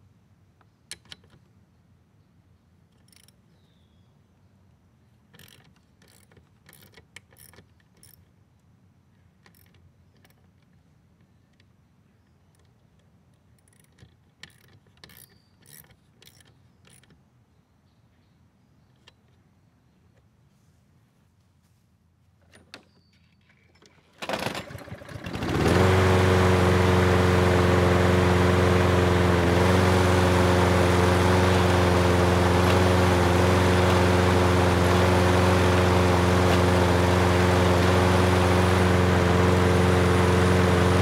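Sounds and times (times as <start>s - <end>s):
small clicks of tool on handle: 5.3s - 17.2s
ratchet wrench clicking: 5.4s - 8.3s, 13.6s - 17.1s.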